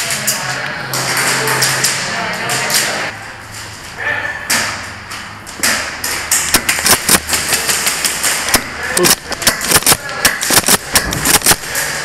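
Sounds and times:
airsoft guns firing: 5.6s - 12.0s.

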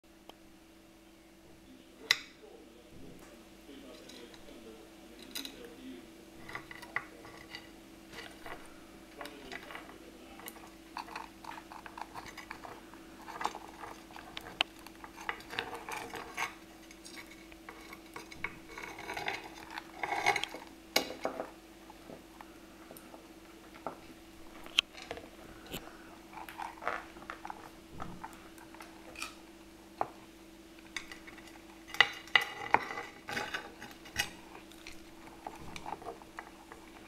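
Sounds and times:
faint steady hum: 0.0s - 37.0s
crab legs clicking and scraping: 6.4s - 21.3s, 21.9s - 30.2s, 30.8s - 37.0s.

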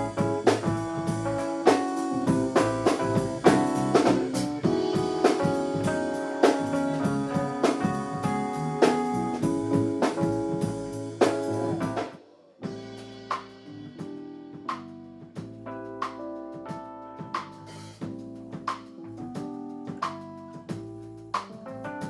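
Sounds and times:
live band playing: 0.0s - 12.1s
drum hits: 0.0s - 21.6s.

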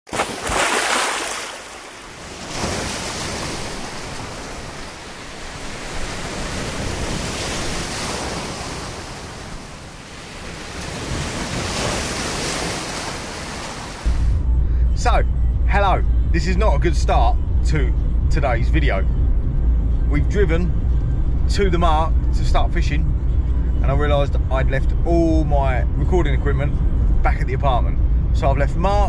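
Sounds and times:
sea waves breaking: 0.1s - 14.4s.

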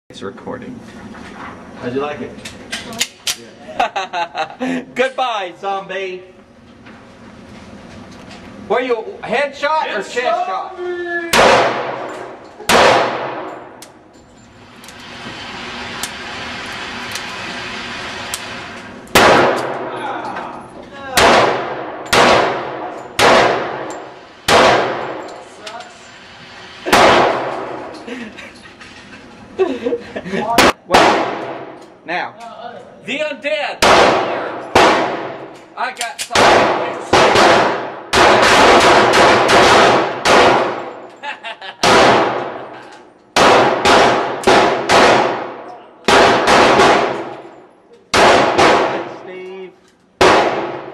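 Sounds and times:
pistol shots echoing indoors: 11.3s - 14.0s, 18.3s - 20.0s, 21.1s - 25.4s, 26.9s - 28.0s, 30.6s - 31.9s, 33.8s - 35.6s, 36.2s - 41.0s, 41.8s - 49.2s, 50.2s - 50.9s.

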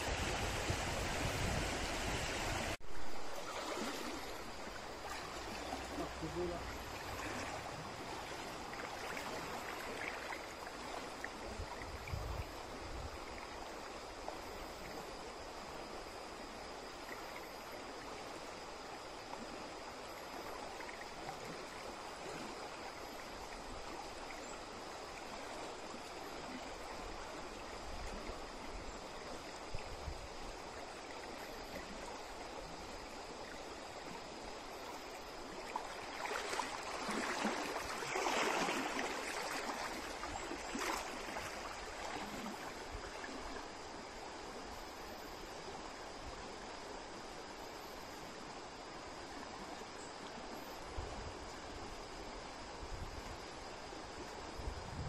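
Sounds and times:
splashing of wading: 0.0s - 11.8s, 34.8s - 44.0s
stream running: 0.0s - 55.0s.

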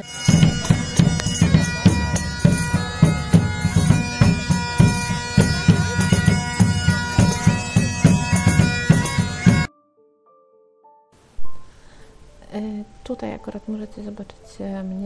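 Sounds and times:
bagpipe playing a tune: 0.0s - 9.7s
hand drum beating: 0.0s - 9.7s.

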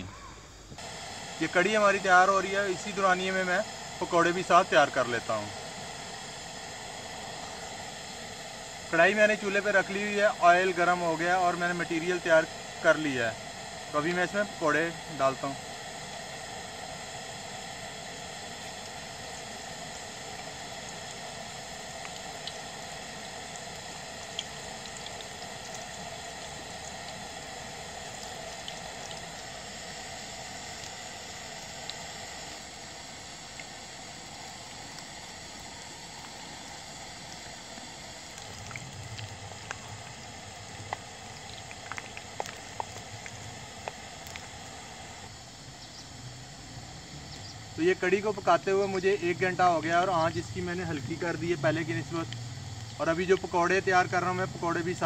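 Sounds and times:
deep-frying sizzle in hot oil: 0.0s - 55.0s.

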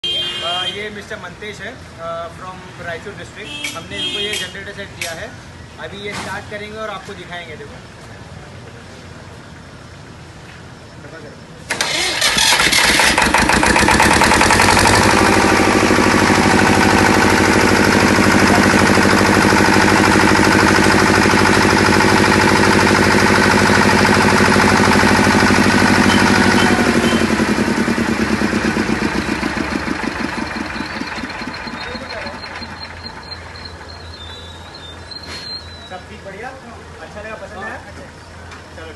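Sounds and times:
diesel generator running: 11.7s - 35.8s.

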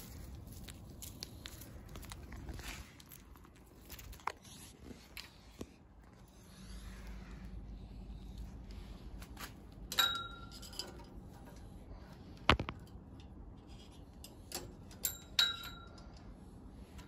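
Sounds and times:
light metallic clinks: 9.9s - 11.2s, 14.5s - 16.2s.

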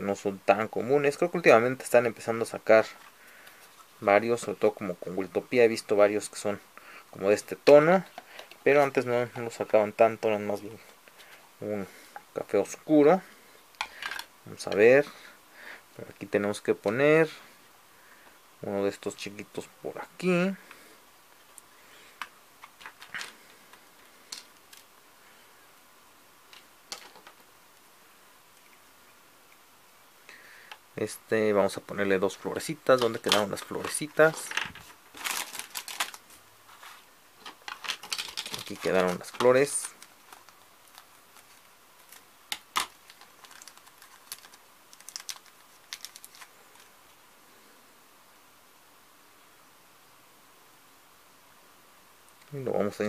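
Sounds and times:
small plastic pieces clicking: 37.4s - 46.9s.

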